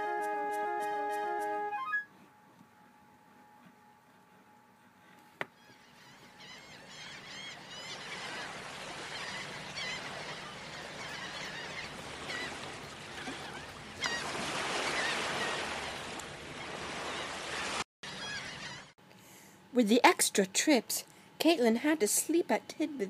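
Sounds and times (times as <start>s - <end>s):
gulls crying: 5.6s - 18.9s
surf washing: 7.7s - 17.8s.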